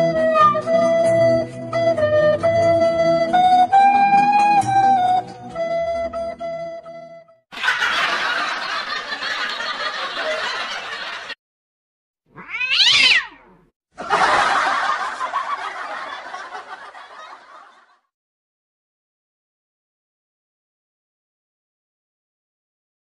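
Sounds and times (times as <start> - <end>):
cat meowing: 12.3 - 13.7.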